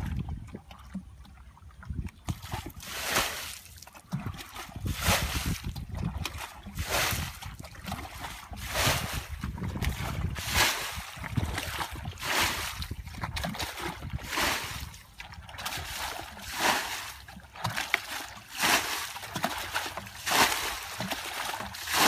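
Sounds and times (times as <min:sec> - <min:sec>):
water splashing from bucket: 0:00.0 - 0:22.0.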